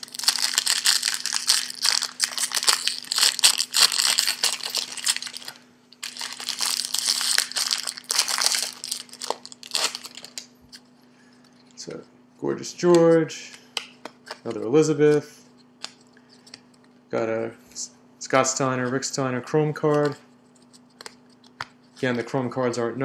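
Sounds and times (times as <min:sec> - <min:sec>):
wrapper tearing and crinkling: 0:00.0 - 0:10.5.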